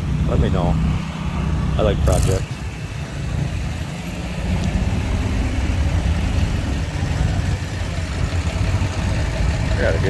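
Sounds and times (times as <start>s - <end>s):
engine idling: 1.5s - 10.0s.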